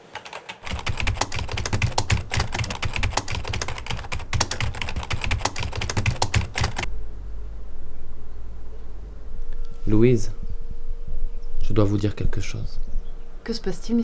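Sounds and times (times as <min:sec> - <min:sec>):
fast typing on keyboard: 0:00.0 - 0:06.9.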